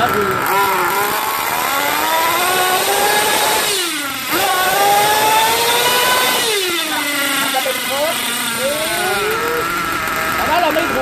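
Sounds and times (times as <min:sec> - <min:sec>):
small nitro engine whining: 0:00.0 - 0:11.0.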